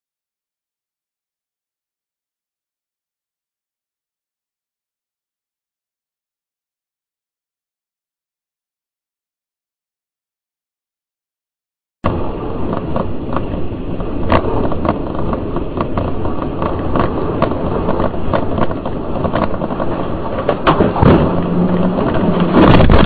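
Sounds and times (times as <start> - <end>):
low steady hum: 12.1 - 23.0
road and wind noise in car: 12.1 - 23.0
clicks and knocks: 14.2 - 23.0.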